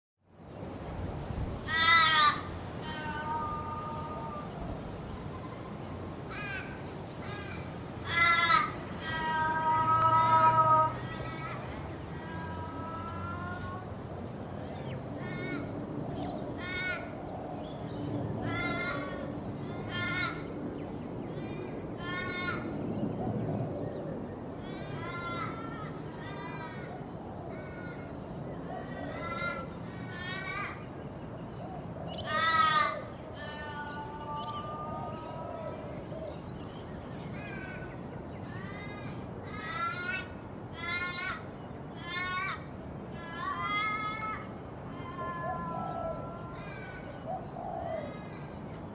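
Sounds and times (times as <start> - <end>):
crow cawing: 1.7 - 4.5, 6.3 - 11.6, 15.2 - 15.7, 16.6 - 17.2, 18.4 - 20.5, 24.6 - 28.2, 32.1 - 35.6, 39.5 - 42.6.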